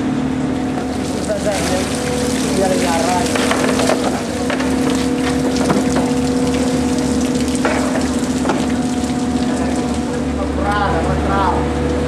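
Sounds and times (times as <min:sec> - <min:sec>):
mechanical hum: 0:00.0 - 0:12.0
water spattering on fish: 0:00.7 - 0:10.3.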